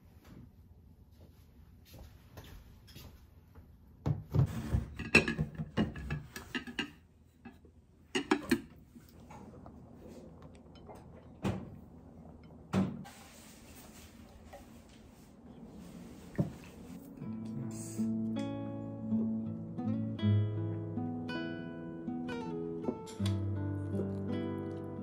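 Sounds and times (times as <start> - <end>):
kitchenware knocks: 4.1 - 6.8.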